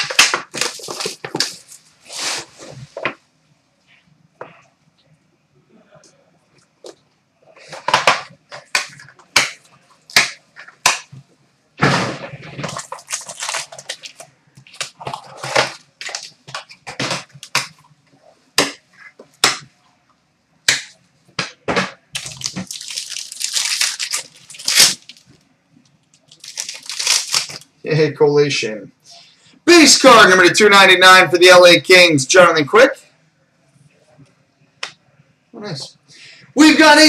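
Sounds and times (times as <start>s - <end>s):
cards rustling: 0.0s - 1.8s, 12.4s - 17.9s, 22.2s - 25.3s, 26.2s - 27.7s.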